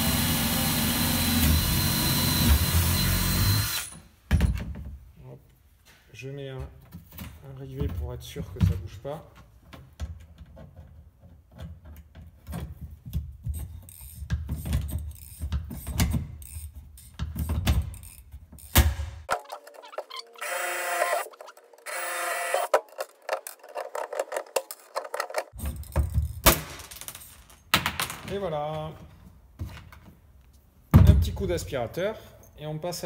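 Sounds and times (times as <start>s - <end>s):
harsh mechanical noise bursts: 19.3s - 22.8s
handling knocks and clicks: 22.6s - 30.6s.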